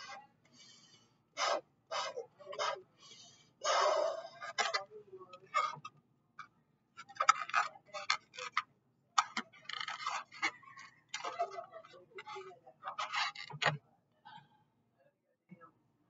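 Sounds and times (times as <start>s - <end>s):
balloon rubbing and squeaking: 0.0s - 5.9s, 7.0s - 8.6s, 9.2s - 13.7s.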